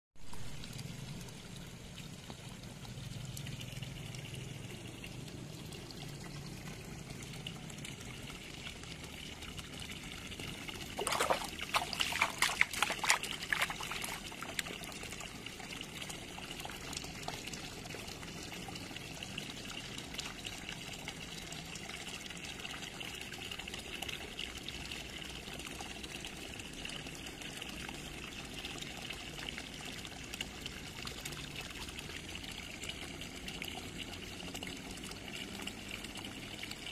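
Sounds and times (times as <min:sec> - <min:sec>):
water trickling into a pond: 0:00.2 - 0:36.9
sharp water splashing: 0:10.9 - 0:14.9.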